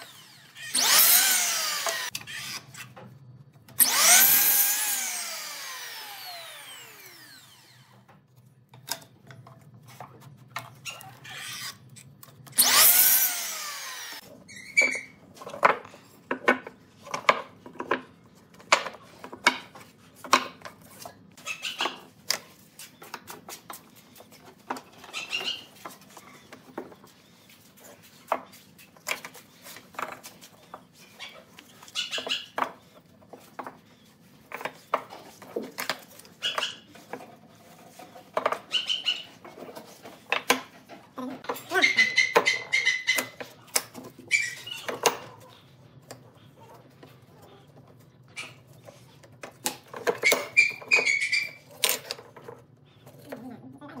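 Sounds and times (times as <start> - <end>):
miter saw blade whine: 0.0 - 2.9, 3.7 - 8.0, 12.6 - 14.2.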